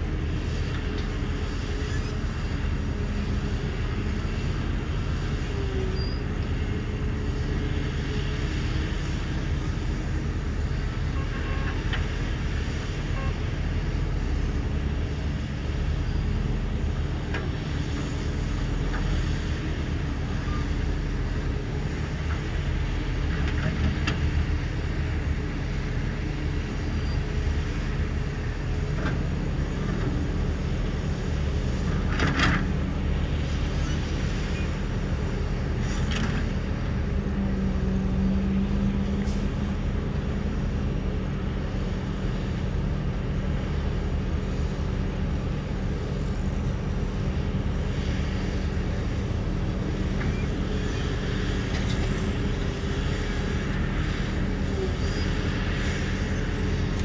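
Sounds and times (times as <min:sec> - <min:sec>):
heavy diesel machinery engine: 0:00.0 - 0:57.0.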